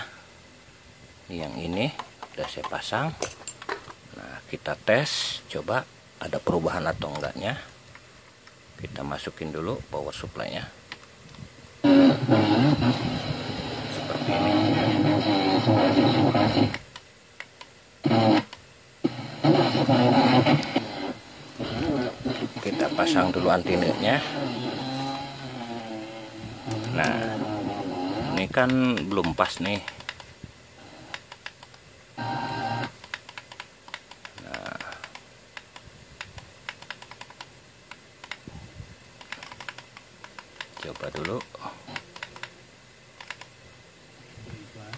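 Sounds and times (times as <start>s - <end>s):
radio tuner warbling: 11.8s - 16.8s, 18.0s - 29.8s, 32.2s - 33.0s
faint clicks: 28.4s - 30.3s, 43.2s - 43.5s.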